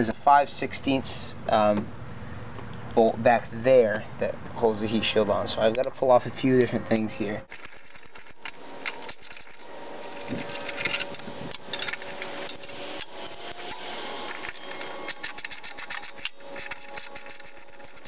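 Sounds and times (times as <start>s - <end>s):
ratchet wrench clicking: 7.5s - 18.0s.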